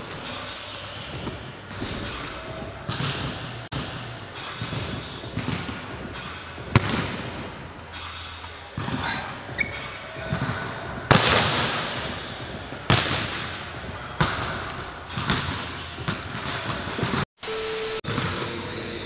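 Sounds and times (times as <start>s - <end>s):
basketball bouncing on wooden floor: 1.1s - 7.6s, 8.8s - 17.2s.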